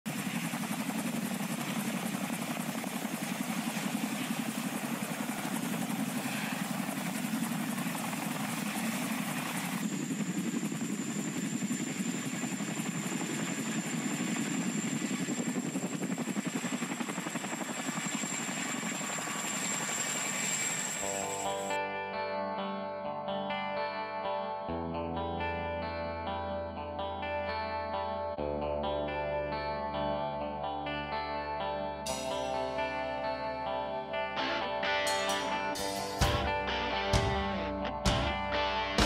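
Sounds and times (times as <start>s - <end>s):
helicopter rotor blades beating: 0.1s - 21.8s, 32.1s - 39.0s
thin high whine: 18.5s - 21.8s.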